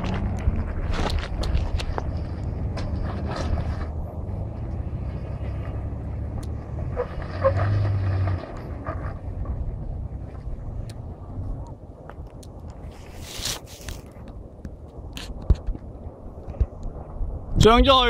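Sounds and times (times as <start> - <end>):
stones crunching and knocking: 0.0 - 2.1
car engine under load: 0.0 - 17.2.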